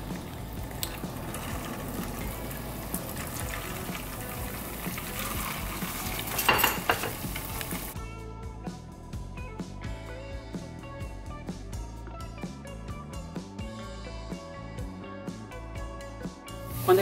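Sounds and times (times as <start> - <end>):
dough frying in hot oil: 0.0 - 8.0
guitar music: 0.0 - 17.0.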